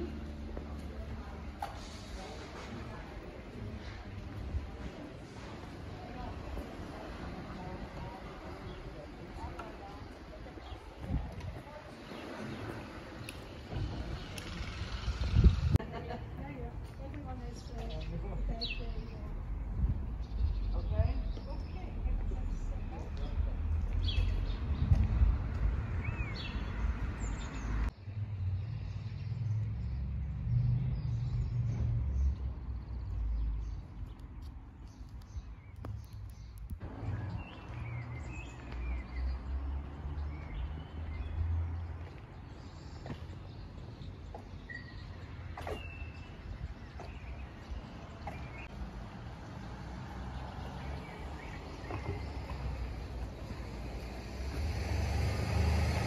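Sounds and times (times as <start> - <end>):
low street rumble: 0.0 - 56.0
birds chirping: 2.9 - 25.3, 25.9 - 54.6
high bird chirps: 44.6 - 48.7.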